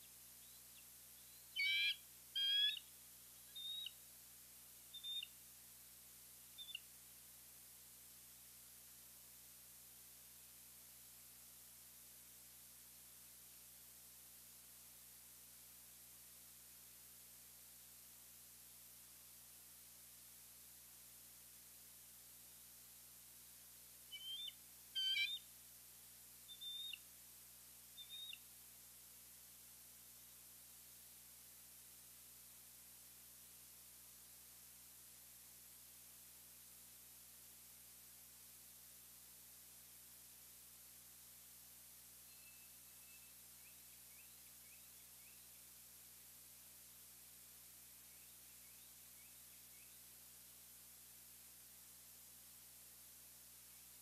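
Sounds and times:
eagle calling: 0:00.0 - 0:04.0, 0:04.9 - 0:05.3, 0:06.6 - 0:06.9, 0:24.1 - 0:25.5, 0:26.5 - 0:27.0, 0:28.0 - 0:28.4, 0:42.3 - 0:45.6.

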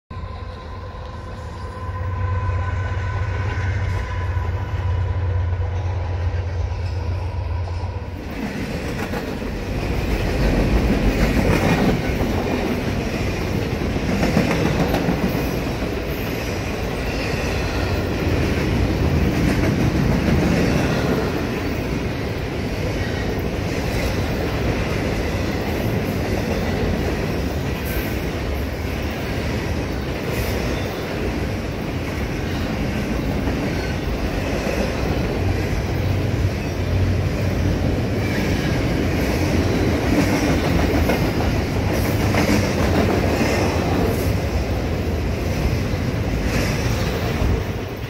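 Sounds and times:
train wheels rumbling on rails: 0:00.1 - 0:48.0.

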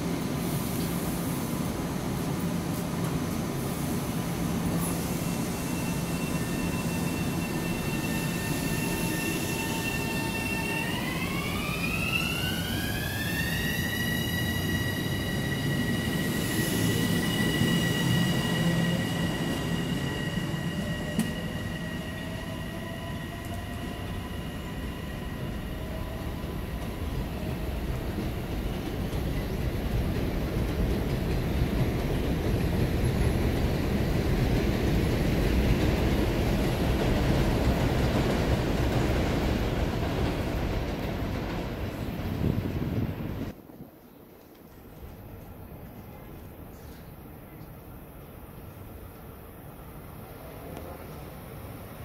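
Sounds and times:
train cars rolling: 0:00.0 - 0:51.8.

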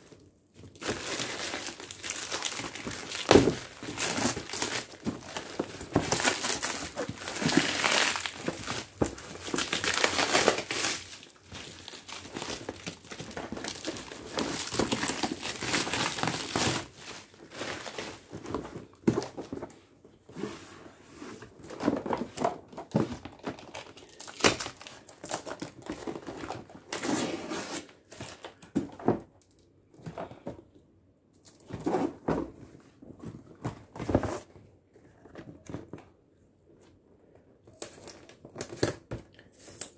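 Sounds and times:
plastic wrapping crinkling: 0:00.1 - 0:19.5, 0:23.0 - 0:26.7
sharp plastic crackles: 0:00.7 - 0:18.3.

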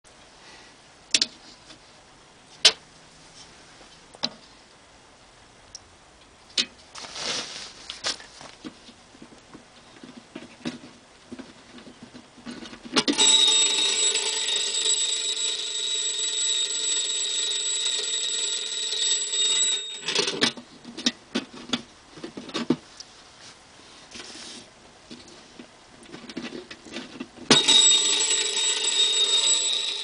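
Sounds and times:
alarm bell ringing: 0:13.1 - 0:20.5, 0:27.5 - 0:30.0.

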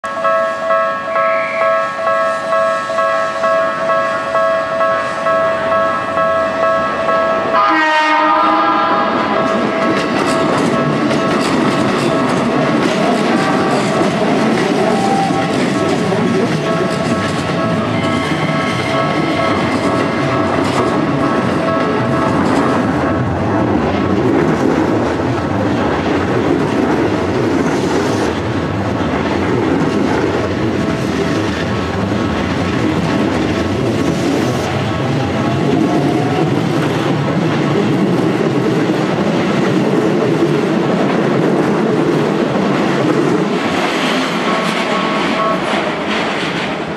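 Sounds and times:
level crossing warning bell: 0:00.0 - 0:23.5, 0:30.2 - 0:37.2, 0:43.6 - 0:46.1
electric train rumbling on rails: 0:00.0 - 0:46.9
train horn: 0:07.5 - 0:09.4, 0:14.8 - 0:15.7.

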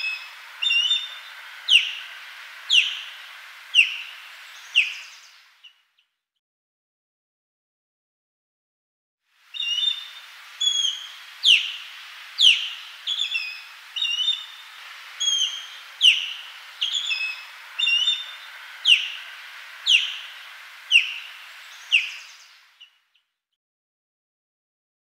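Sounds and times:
osprey whistled calls: 0:00.0 - 0:05.8, 0:09.5 - 0:23.1
steady background hiss: 0:00.0 - 0:05.9, 0:09.3 - 0:23.1.

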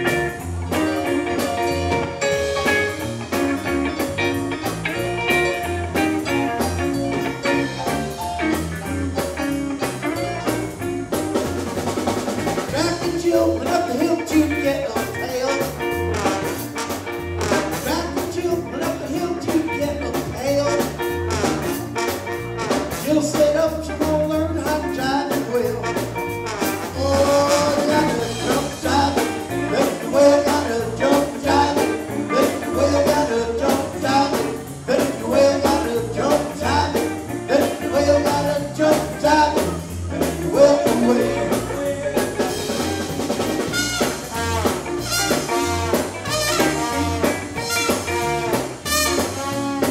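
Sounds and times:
brass horns: 0:00.0 - 0:13.0, 0:15.2 - 0:18.2, 0:20.4 - 0:23.3, 0:25.5 - 0:36.6, 0:40.5 - 0:49.9
drum kit beat: 0:00.0 - 0:49.9
live band playing soul: 0:00.0 - 0:49.9.

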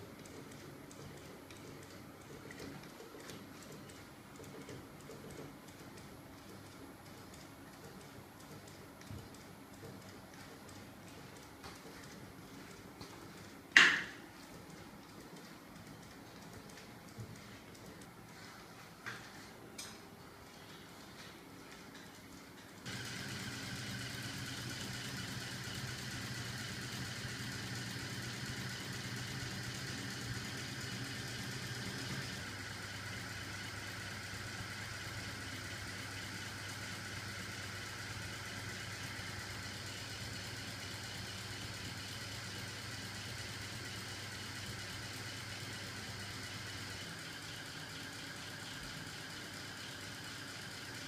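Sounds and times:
small electric motor humming: 0:22.8 - 0:50.8.

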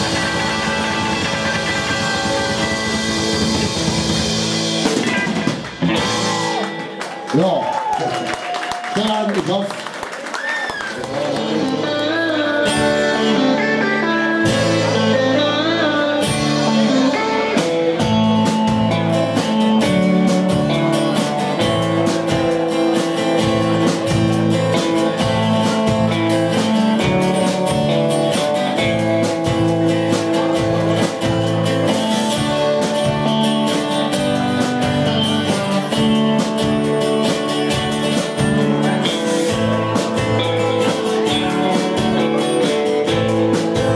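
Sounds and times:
steady drum beat: 0:00.0 - 0:07.3, 0:16.2 - 0:43.9
guitars: 0:00.0 - 0:08.3, 0:10.6 - 0:43.9
live band playing: 0:00.0 - 0:43.9.

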